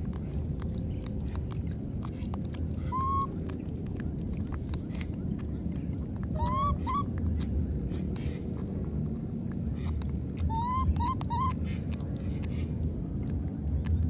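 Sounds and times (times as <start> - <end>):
low rumble: 0.0 - 14.0
baby monkey coo call: 2.8 - 3.4, 6.2 - 7.2, 10.4 - 11.8.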